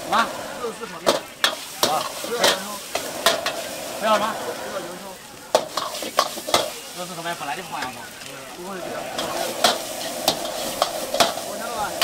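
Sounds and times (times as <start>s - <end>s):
frying sizzle: 0.0s - 12.0s
metal ladle clanking on wok: 9.2s - 12.0s.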